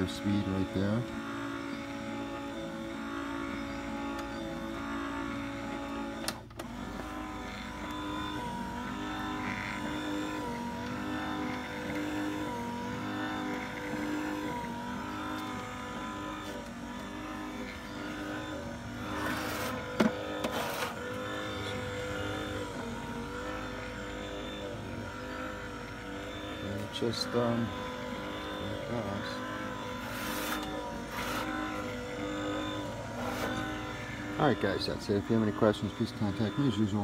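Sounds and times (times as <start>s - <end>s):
motor hum with wavering pitch: 0.0s - 37.0s.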